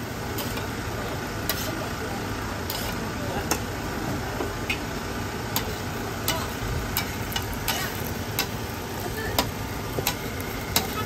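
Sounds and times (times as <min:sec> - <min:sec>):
frying hiss: 0:00.0 - 0:11.0.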